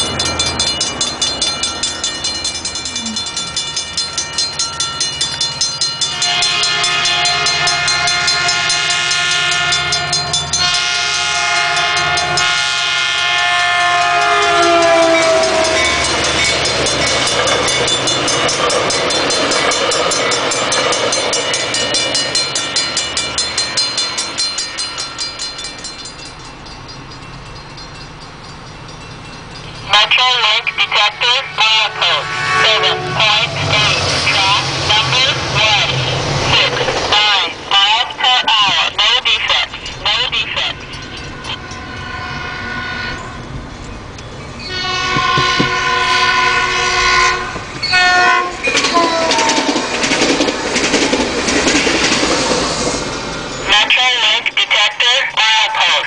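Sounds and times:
crossing bell ringing: 0.0s - 51.4s, 52.0s - 56.0s
passing train rumble: 0.0s - 56.0s
train horn blast: 6.1s - 16.2s, 31.2s - 36.1s, 41.5s - 43.5s, 44.7s - 49.8s.

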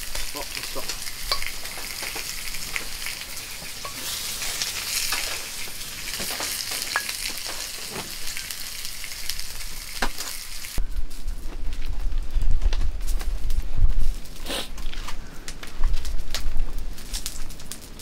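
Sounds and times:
meat sizzling on a grill: 0.0s - 11.8s.

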